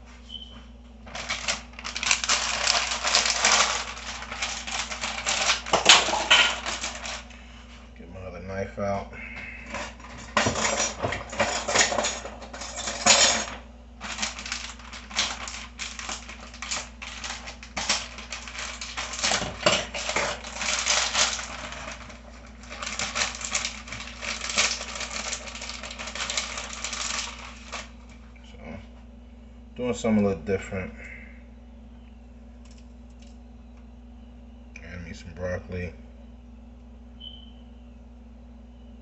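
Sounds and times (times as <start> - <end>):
crackling handling noise: 1.0 - 7.9, 9.4 - 28.4, 32.6 - 33.9.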